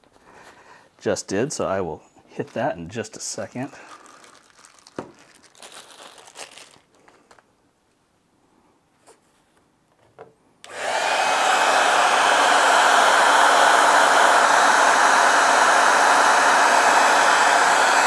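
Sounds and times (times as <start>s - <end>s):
hair dryer blowing: 10.6s - 18.0s.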